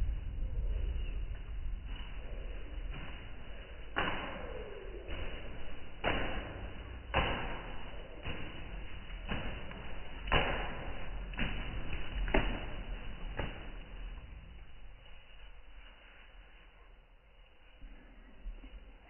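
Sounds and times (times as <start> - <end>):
pigeon wings flapping: 1.8 - 16.6.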